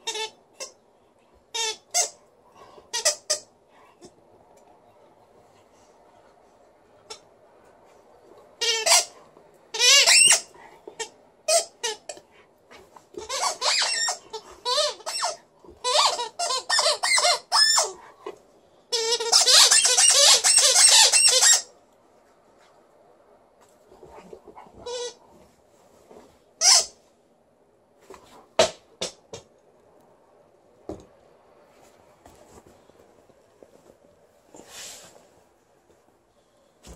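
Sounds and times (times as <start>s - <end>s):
squeaky rubber ball squeaking: 9.7s - 10.5s, 13.2s - 17.9s, 18.9s - 21.7s.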